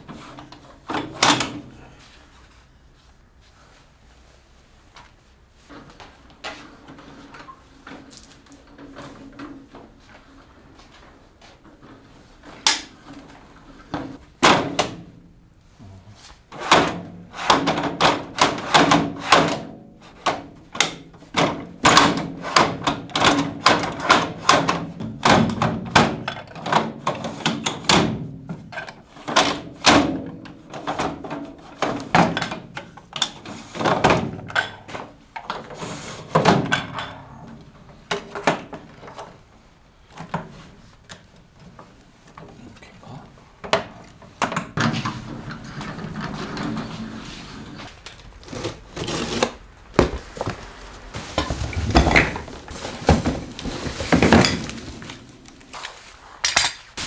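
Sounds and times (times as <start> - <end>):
objects knocking and clattering: 16.5 - 39.4, 49.9 - 55.7.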